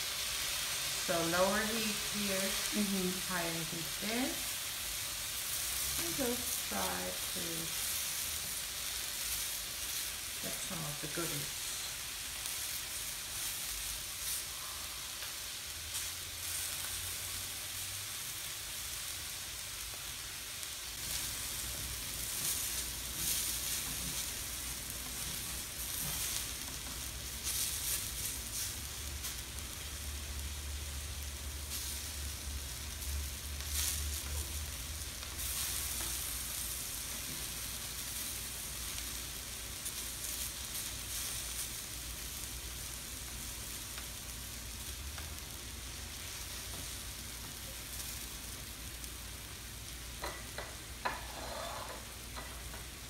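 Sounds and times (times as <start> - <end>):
meat and vegetables sizzling: 0.0 - 53.0
spatulas scraping on griddle: 51.0 - 52.7.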